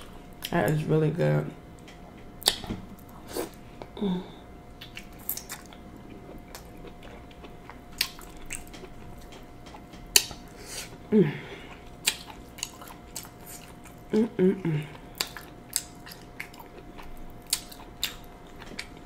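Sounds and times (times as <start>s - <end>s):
wet chewing: 4.8s - 11.0s, 11.6s - 19.0s.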